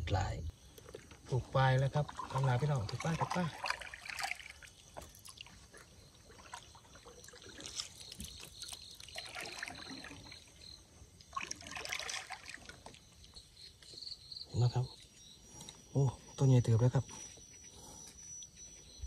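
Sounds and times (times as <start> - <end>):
insect trill: 0.0 - 19.0
water trickling and splashing: 0.8 - 13.8.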